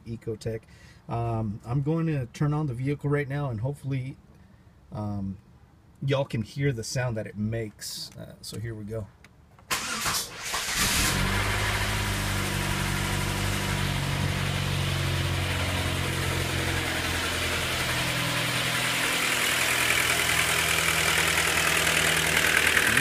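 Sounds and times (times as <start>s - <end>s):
starter cranking engine: 9.7s - 12.2s, 19.5s - 23.0s
car engine idling with ticking: 11.3s - 23.0s.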